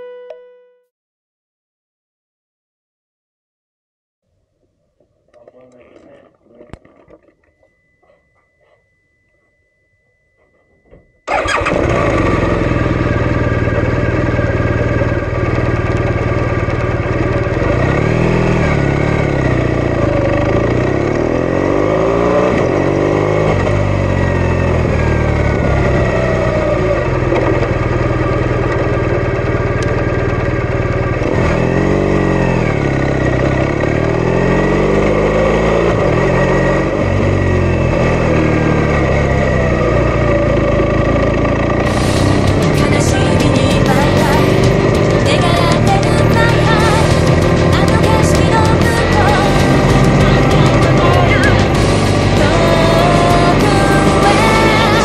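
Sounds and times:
motorcycle engine running: 11.3 - 55.0.

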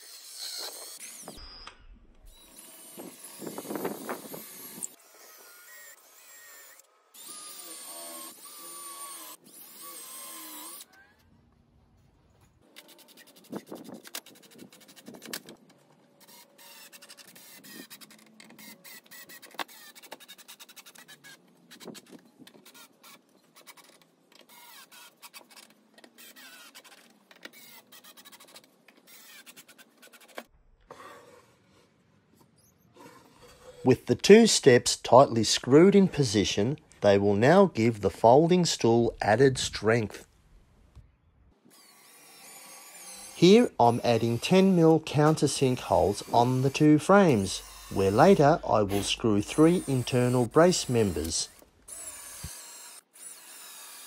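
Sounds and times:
cordless drill drilling wood: 0.0 - 1.7, 2.3 - 11.0, 24.5 - 25.4, 26.2 - 30.2, 41.7 - 54.0.

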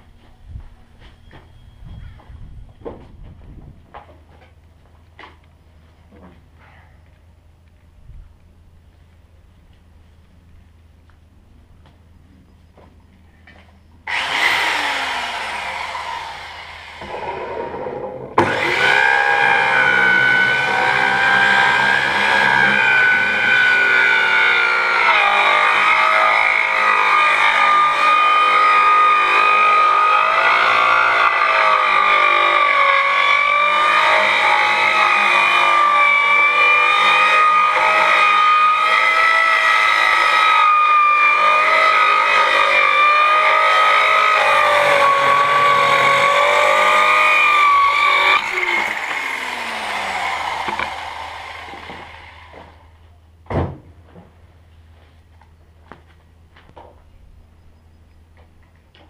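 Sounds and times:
circular saw whining: 14.0 - 53.1.

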